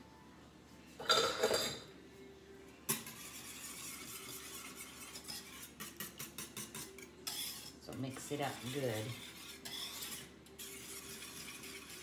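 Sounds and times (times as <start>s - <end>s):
spoon scraping ceramic bowl: 1.0s - 1.8s, 2.9s - 12.0s
kitchenware clattering: 1.0s - 1.9s.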